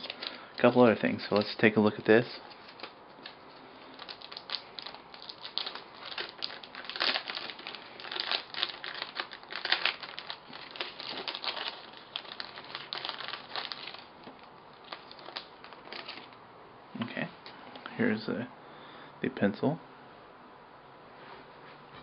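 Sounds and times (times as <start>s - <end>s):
plastic bag crinkling: 0.0s - 16.4s.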